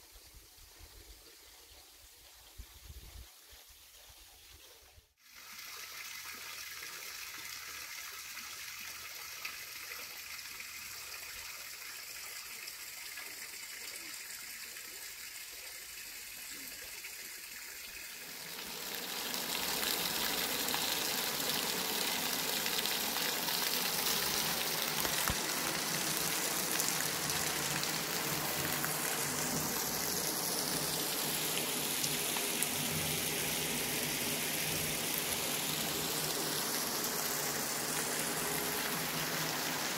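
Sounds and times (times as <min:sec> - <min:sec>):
water splashing onto stones: 0:23.8 - 0:32.4.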